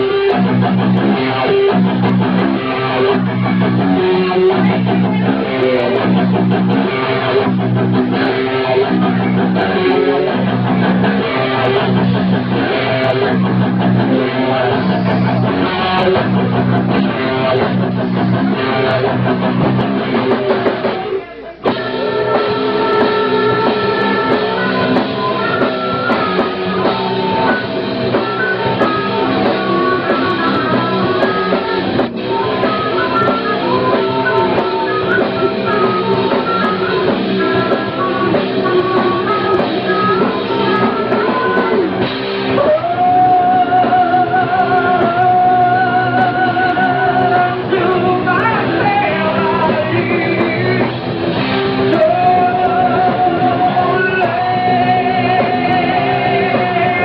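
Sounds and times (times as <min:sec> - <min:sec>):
rock band playing: 0:00.0 - 0:57.0.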